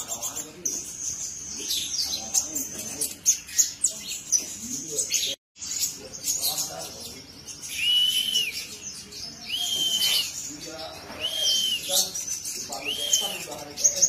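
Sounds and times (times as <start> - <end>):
bird chirping: 0.0 - 14.0
bird whistles: 7.7 - 8.8, 9.4 - 10.5, 11.1 - 13.6.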